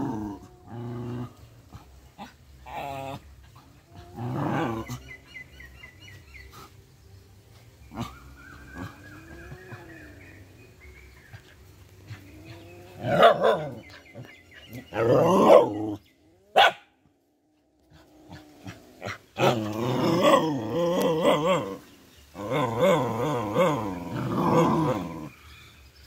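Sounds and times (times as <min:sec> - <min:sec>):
cat and dogs growling and yowling: 0:00.0 - 0:01.4, 0:02.2 - 0:05.0, 0:12.1 - 0:16.6, 0:17.8 - 0:25.3.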